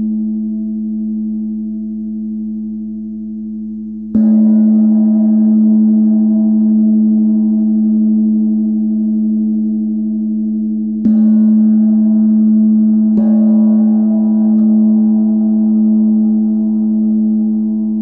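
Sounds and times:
felt mallet striking gong: 3.9s - 18.0s.

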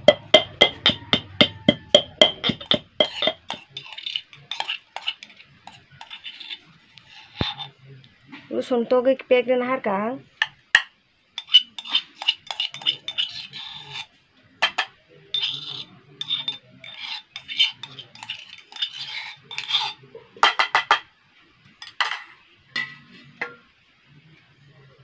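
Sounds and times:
cup clinking against steel bowls: 0.0s - 6.2s, 14.6s - 21.1s
fingers scraping steel cup: 0.0s - 7.8s, 11.4s - 14.1s, 15.3s - 20.0s.

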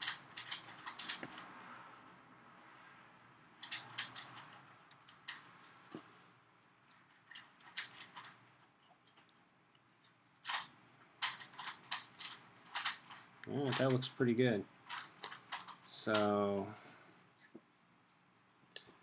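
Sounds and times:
small clicks and taps of parts: 0.0s - 2.2s, 3.6s - 6.1s, 9.0s - 14.0s, 14.9s - 17.7s.

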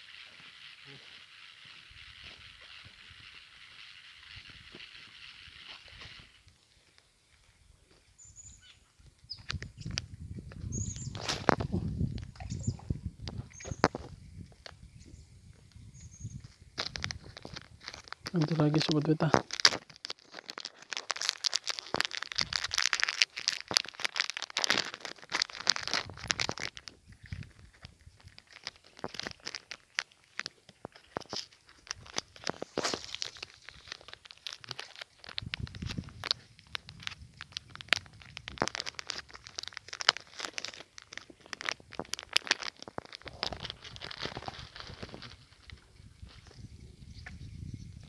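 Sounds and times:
twigs and gravel crunching underfoot: 0.0s - 48.0s
plastic packet crinkling: 16.8s - 45.8s.

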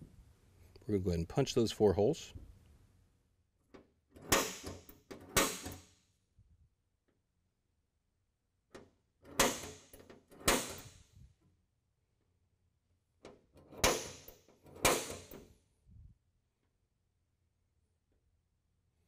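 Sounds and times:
punch striking steel floor: 4.2s - 5.9s, 9.3s - 11.0s, 13.8s - 15.4s.

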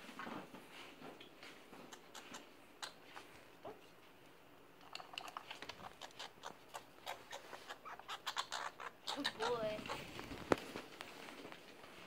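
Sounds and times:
light ticks and scrapes: 4.8s - 6.3s, 9.8s - 12.0s.

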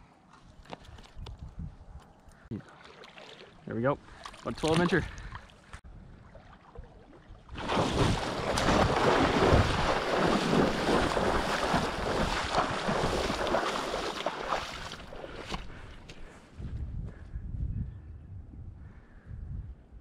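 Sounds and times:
splashing and thrashing in water: 2.5s - 16.2s.

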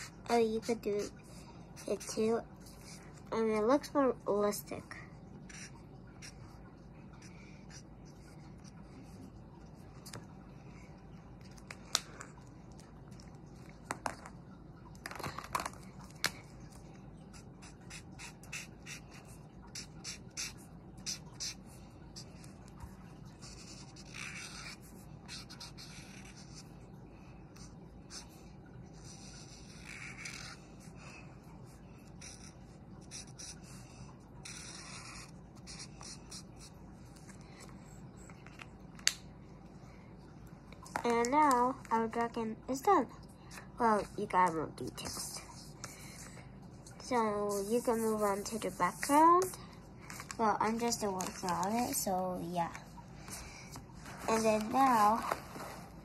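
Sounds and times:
felt-tip marker scratching on paper: 5.5s - 6.5s, 17.3s - 22.5s, 23.4s - 26.7s, 29.0s - 30.6s, 32.1s - 36.8s, 47.1s - 49.6s.

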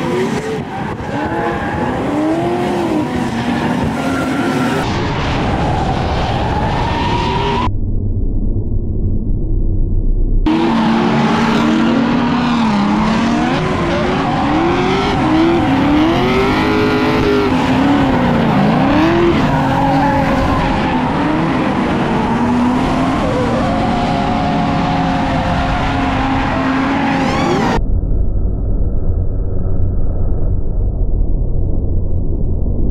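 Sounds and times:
car engines revving: 0.0s - 7.7s, 10.5s - 27.8s
tyres squealing and skidding: 0.0s - 7.7s, 10.5s - 27.8s.

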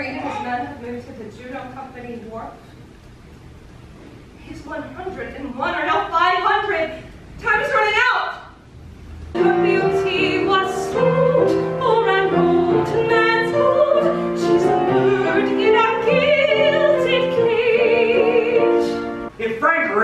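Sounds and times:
operatic singing: 9.4s - 19.5s.

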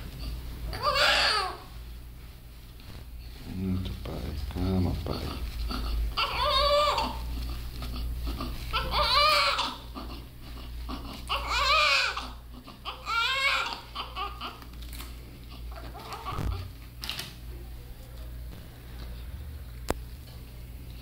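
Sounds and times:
baby crying: 0.7s - 1.7s, 6.1s - 7.4s, 8.3s - 10.2s, 10.9s - 14.6s, 15.7s - 16.7s.

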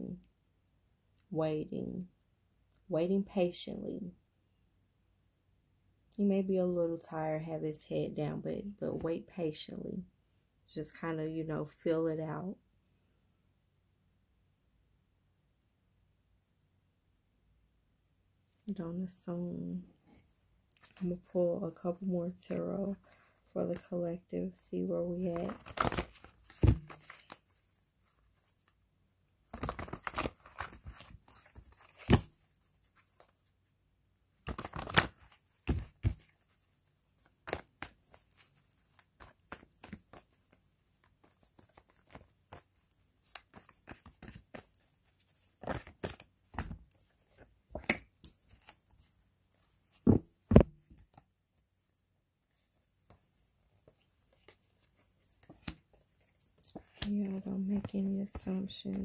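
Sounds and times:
cards rustling and slapping: 25.2s - 28.7s, 29.4s - 33.5s, 34.4s - 51.2s, 52.5s - 59.0s.

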